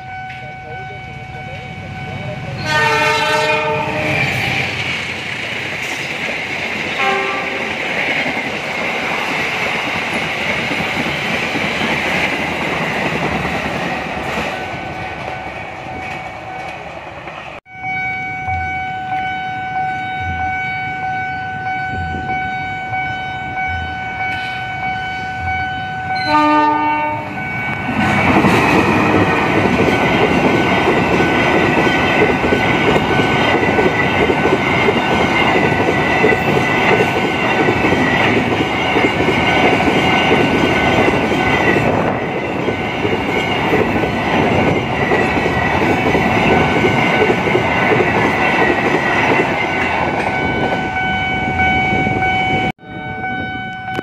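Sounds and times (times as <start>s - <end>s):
locomotive horn: 0.0s - 4.6s, 7.0s - 7.7s, 17.7s - 28.0s
train wheels on rails: 0.0s - 17.6s, 23.5s - 52.7s
freight train rolling past: 0.0s - 54.0s.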